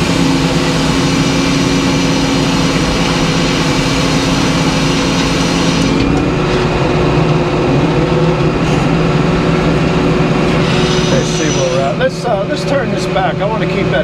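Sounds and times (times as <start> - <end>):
engine running steadily: 0.0 - 14.0
circular saw blade cutting wood: 10.5 - 12.0.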